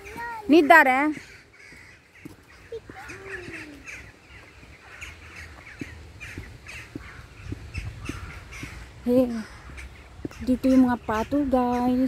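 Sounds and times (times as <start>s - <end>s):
crows cawing: 0.0s - 11.9s.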